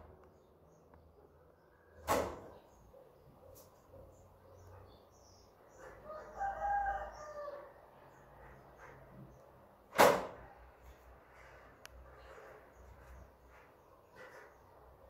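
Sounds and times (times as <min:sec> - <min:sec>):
rooster crowing: 0:06.0 - 0:07.8
sharp knock: 0:09.9 - 0:10.4.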